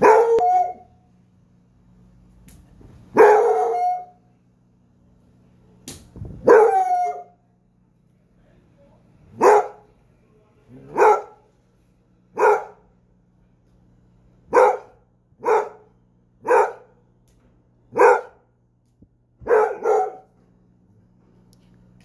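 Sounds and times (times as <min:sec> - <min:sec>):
dog barking: 0:00.0 - 0:00.9, 0:03.1 - 0:04.2, 0:06.4 - 0:07.4, 0:09.3 - 0:09.9, 0:10.8 - 0:11.5, 0:12.3 - 0:12.9, 0:14.5 - 0:17.0, 0:17.9 - 0:18.5, 0:19.4 - 0:20.4.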